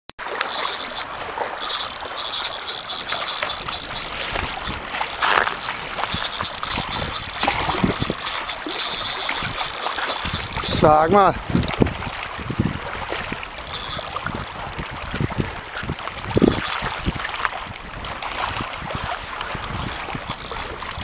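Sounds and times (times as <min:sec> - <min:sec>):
fishing reel drag buzzing: 0:00.2 - 0:21.0
wind noise on microphone: 0:00.2 - 0:21.0.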